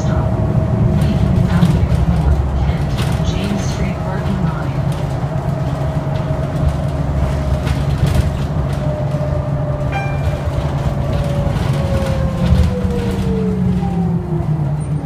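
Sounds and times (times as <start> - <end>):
bus engine and road rumble: 0.0 - 15.0
brief high tone: 9.9 - 10.6.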